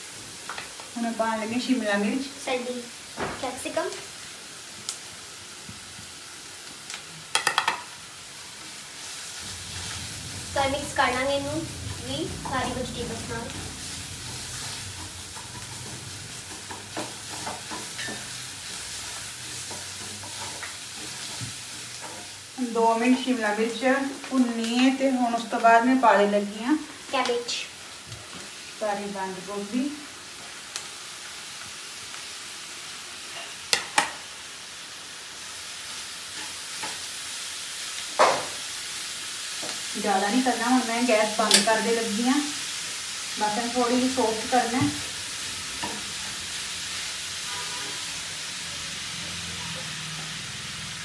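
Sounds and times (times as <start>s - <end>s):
vegetables sizzling in hot oil: 0.0s - 51.0s
spatula scraping pan: 9.0s - 22.4s.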